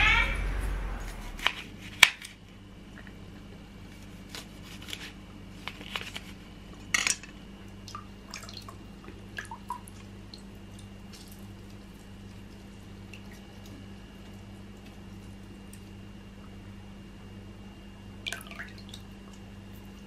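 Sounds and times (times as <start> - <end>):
water plops and drips: 7.8 - 14.9, 18.2 - 19.4.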